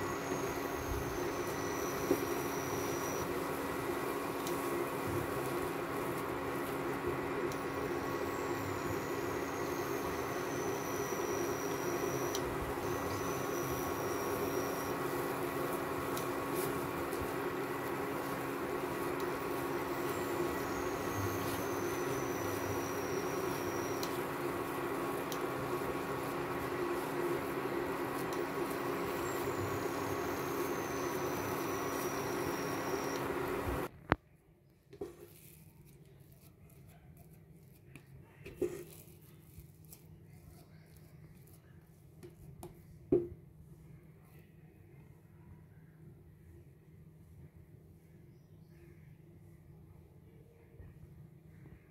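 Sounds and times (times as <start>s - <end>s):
thin high whine: 0.0s - 33.9s
induction cooktop hum: 0.0s - 35.6s.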